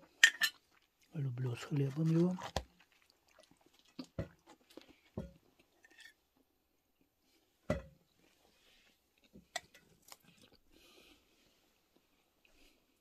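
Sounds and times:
faint chewing: 0:00.0 - 0:06.2, 0:08.2 - 0:13.0
metal spoon clinking on dishes: 0:00.2 - 0:00.6.

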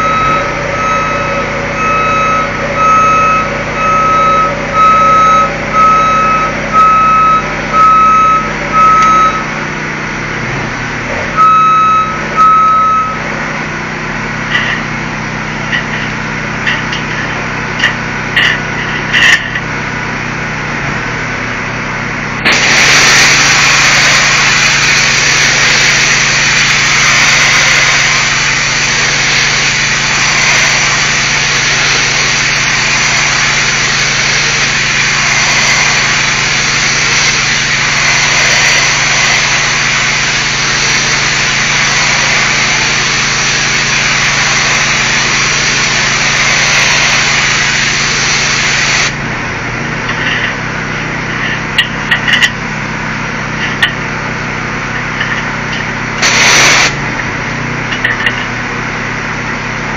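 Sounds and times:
engine running: 0:00.0 - 0:59.9
pressure washer spraying: 0:22.4 - 0:49.4, 0:54.8 - 0:57.0.

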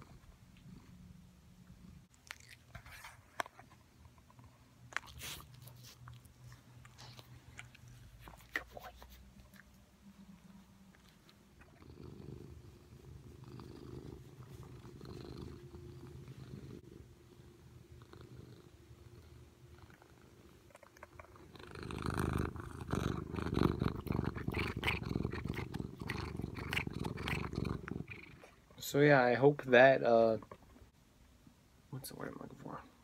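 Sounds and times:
cat purring: 0:00.0 - 0:02.1, 0:03.9 - 0:30.9
rubbing and crackling on phone: 0:02.6 - 0:04.3.

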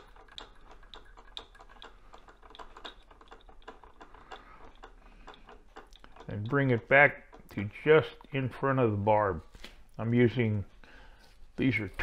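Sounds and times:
faint light ticking of thread: 0:00.0 - 0:08.7.

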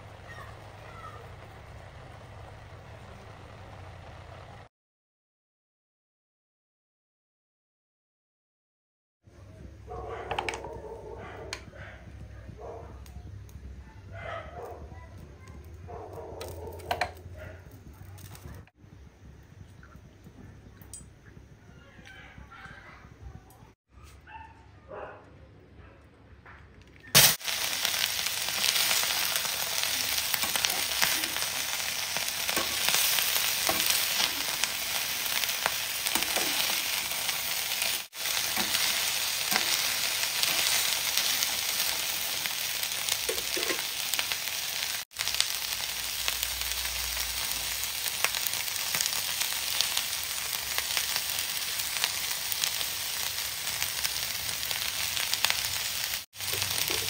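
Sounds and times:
food sizzling in a pan: 0:00.0 - 0:04.6, 0:27.2 - 0:57.0.

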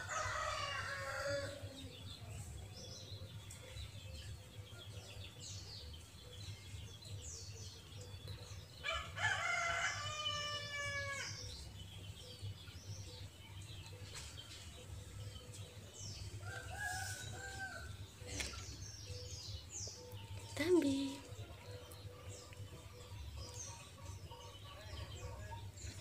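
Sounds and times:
rooster crowing: 0:00.0 - 0:01.7, 0:08.8 - 0:11.3
small birds chirping: 0:00.0 - 0:26.0.

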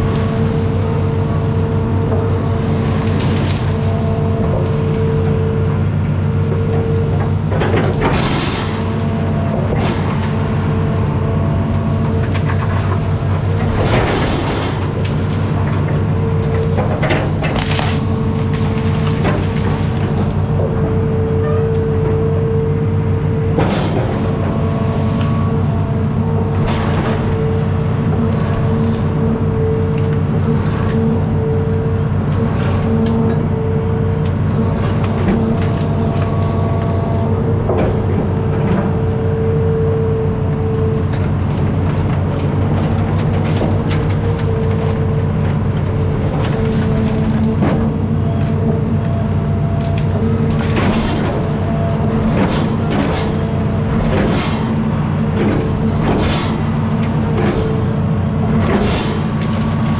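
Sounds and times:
excavator diesel engine running: 0:00.0 - 0:59.9.

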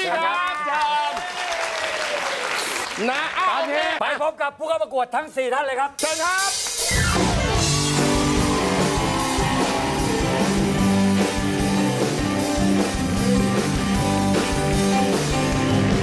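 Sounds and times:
drum kit: 0:06.0 - 0:16.0
guitar: 0:06.8 - 0:16.0.

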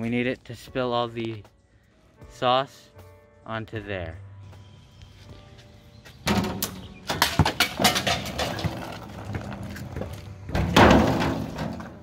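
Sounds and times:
contraption parts clattering: 0:06.3 - 0:12.0.

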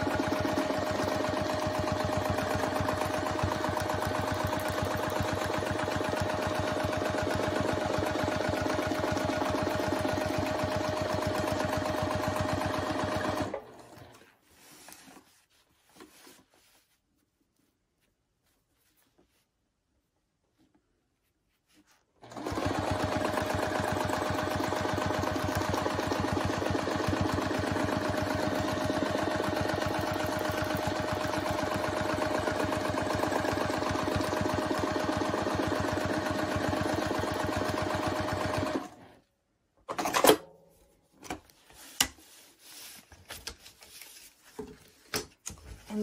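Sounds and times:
sewing machine running: 0:00.0 - 0:14.0, 0:22.2 - 0:39.1.

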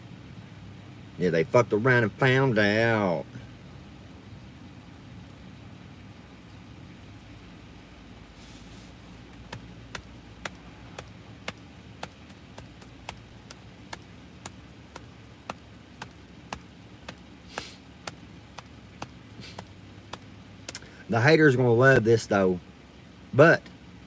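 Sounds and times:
car engine idling: 0:00.0 - 0:23.9
short hisses: 0:08.4 - 0:09.0, 0:17.4 - 0:17.9, 0:19.4 - 0:19.7
even ticking: 0:09.0 - 0:21.2.

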